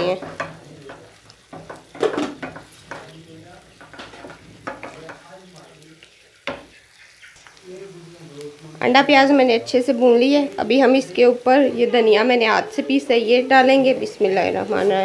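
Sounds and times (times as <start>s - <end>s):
wooden spatula scraping pan: 0.0s - 5.2s
light frying sizzle: 0.0s - 15.0s.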